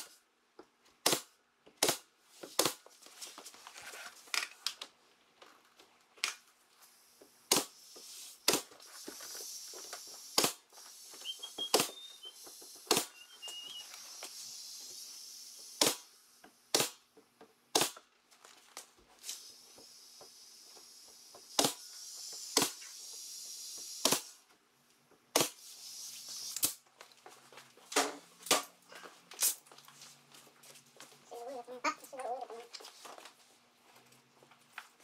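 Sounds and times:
nail gun firing into wood: 1.0 - 2.8, 10.3 - 10.6, 12.8 - 13.1, 15.8 - 16.1, 16.7 - 17.1, 17.7 - 18.0, 21.5 - 21.8, 22.5 - 22.8, 24.0 - 24.4, 25.3 - 25.6
air hissing: 7.7 - 16.4, 19.2 - 24.4, 25.5 - 26.8.

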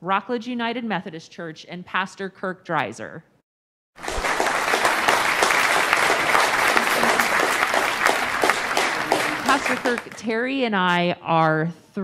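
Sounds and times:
audience applauding: 4.0 - 10.2.

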